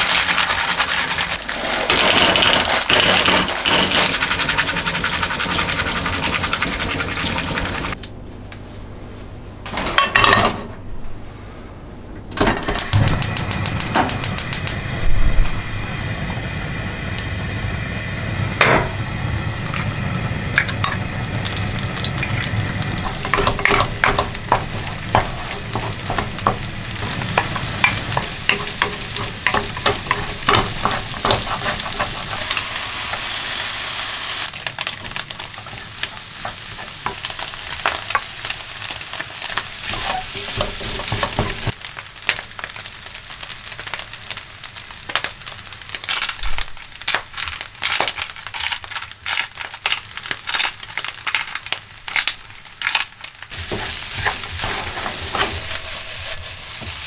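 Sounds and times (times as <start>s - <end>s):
food sizzling in a pan: 0.0s - 8.0s, 12.7s - 57.0s
wooden spatula scraping pan: 0.3s - 5.1s, 23.0s - 33.3s, 39.8s - 41.7s, 53.5s - 57.0s.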